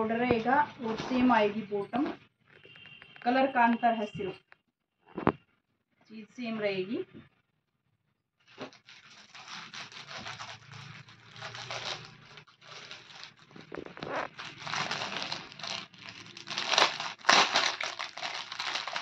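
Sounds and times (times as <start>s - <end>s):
plastic packet crinkling: 8.5s - 19.0s.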